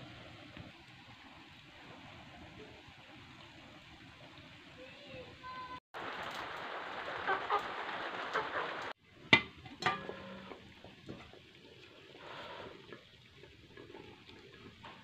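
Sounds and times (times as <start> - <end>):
cooking fire hissing: 0.0 - 15.0
pot bubbling: 6.0 - 15.0.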